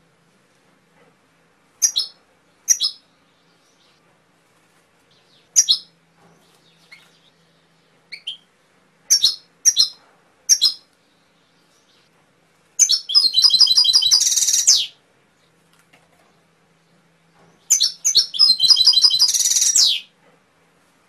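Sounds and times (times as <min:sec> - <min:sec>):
canary singing: 0:01.8 - 0:04.0, 0:05.1 - 0:08.5, 0:09.1 - 0:12.1, 0:12.8 - 0:15.5, 0:16.9 - 0:20.2.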